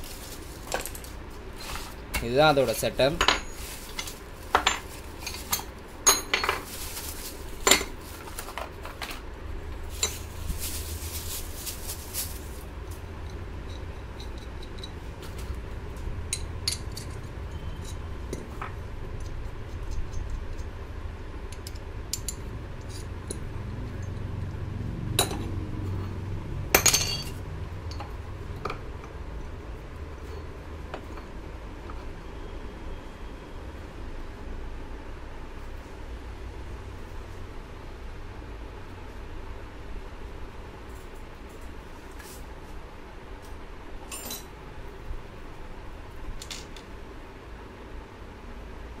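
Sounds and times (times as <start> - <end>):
plastic wrapping crinkling: 0.0 - 2.0, 2.6 - 5.8, 6.6 - 9.0, 9.8 - 12.7
metal parts clinking and knocking: 2.2 - 6.8, 26.8 - 28.0.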